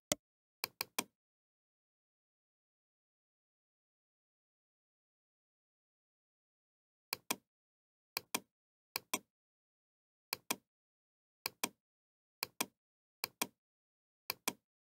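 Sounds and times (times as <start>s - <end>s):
computer mouse clicks: 0.0s - 1.1s, 7.1s - 7.4s, 8.2s - 9.3s, 10.3s - 10.6s, 11.5s - 11.8s, 12.4s - 13.6s, 14.3s - 14.6s.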